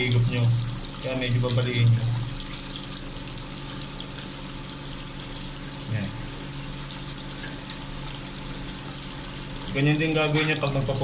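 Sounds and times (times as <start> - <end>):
low steady hum: 0.0 - 11.0
water moving in a sink: 0.0 - 11.0.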